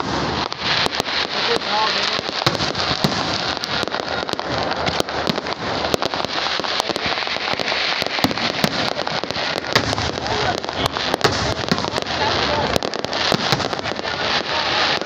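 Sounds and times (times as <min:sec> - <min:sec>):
fireworks bangs and crackling: 0:00.0 - 0:15.0.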